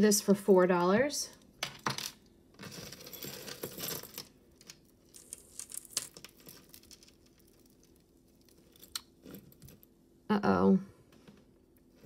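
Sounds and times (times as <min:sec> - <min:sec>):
metal chains clinking: 0:02.6 - 0:04.3.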